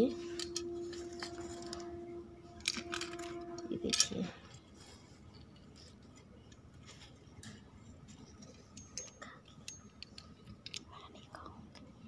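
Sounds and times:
tongs scraping: 0.0 - 4.7.

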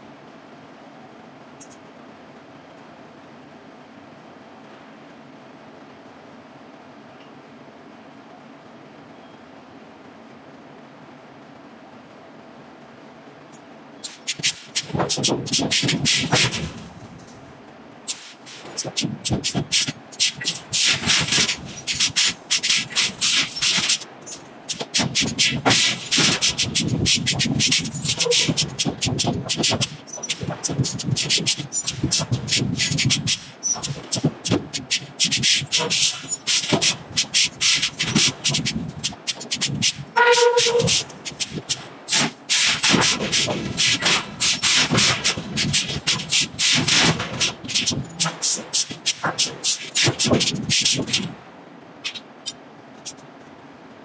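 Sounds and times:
hot metal hissing and crackling: 14.0 - 16.9, 18.1 - 51.3.

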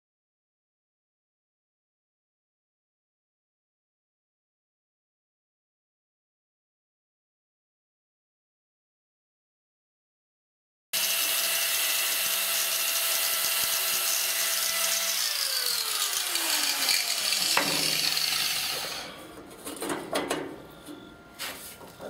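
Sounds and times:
angle grinder whine: 11.0 - 19.5, 20.5 - 22.0.

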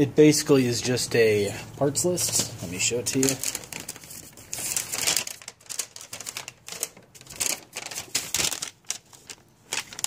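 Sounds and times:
rustling and crackling handling noise: 2.0 - 10.0.

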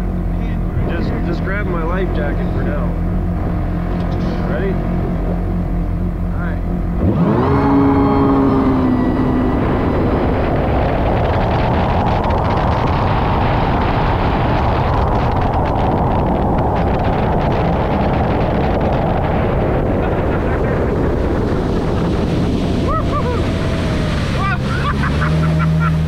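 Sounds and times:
low steady engine note: 0.0 - 26.0
wind rushing over microphone: 0.0 - 26.0.

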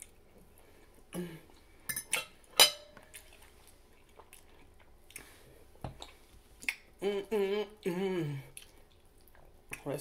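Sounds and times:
wet mouth clicks: 6.0 - 7.0.

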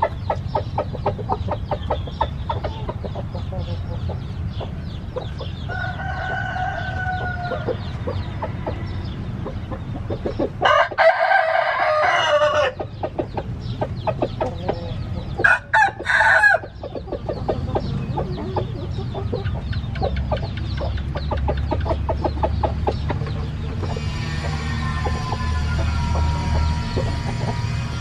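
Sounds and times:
chicken clucking: 0.0 - 28.0
rooster crowing: 5.7 - 7.7, 10.6 - 12.8, 15.4 - 16.8, 24.6 - 27.8.

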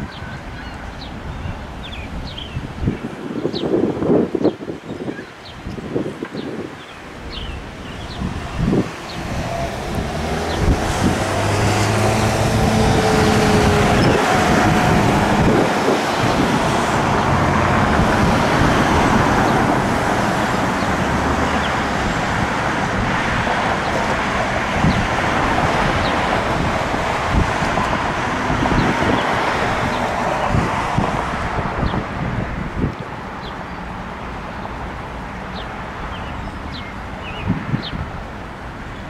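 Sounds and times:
road traffic: 0.0 - 39.0
wind buffeting microphone: 0.0 - 39.0
low engine hum: 7.6 - 32.4.

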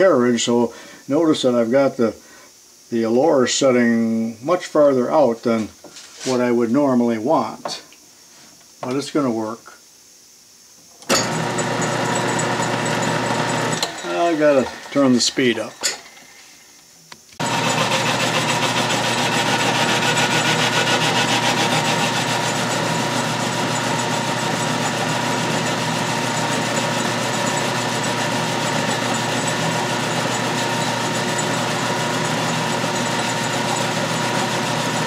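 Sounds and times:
metal lathe motor whining: 11.0 - 16.4, 17.4 - 35.0.

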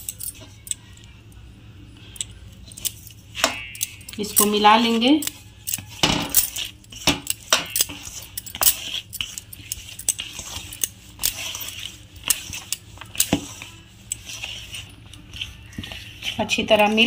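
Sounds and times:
bangles clinking: 0.0 - 1.1, 2.1 - 15.7
flour scraping against metal bowl: 4.2 - 17.0.

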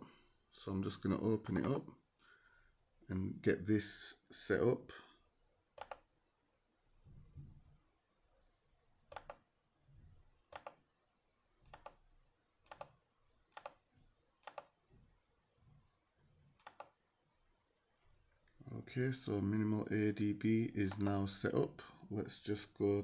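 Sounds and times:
computer mouse clicking: 5.8 - 6.1, 9.1 - 9.4, 10.5 - 10.8, 11.6 - 12.0, 12.6 - 13.8, 14.4 - 14.8, 16.6 - 17.0.

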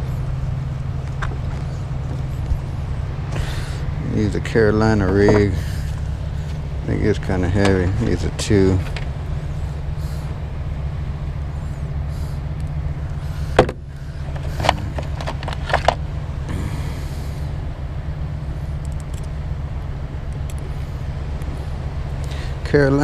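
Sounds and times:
engine idling rumble: 0.0 - 23.0
sharp clicks and knocks: 8.8 - 9.1, 13.6 - 16.0.

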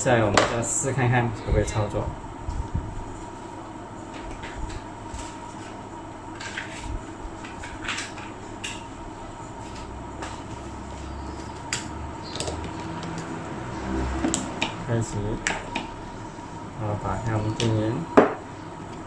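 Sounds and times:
steady background hum: 0.0 - 19.0.

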